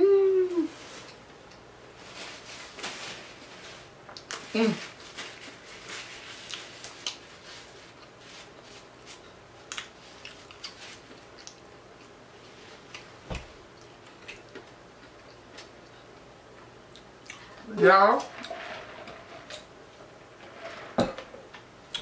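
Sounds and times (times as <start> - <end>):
person chewing food: 9.1 - 13.1, 13.7 - 16.2, 16.9 - 17.6.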